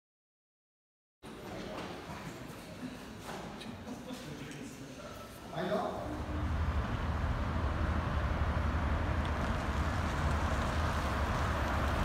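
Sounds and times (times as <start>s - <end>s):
cars passing: 6.0s - 12.0s.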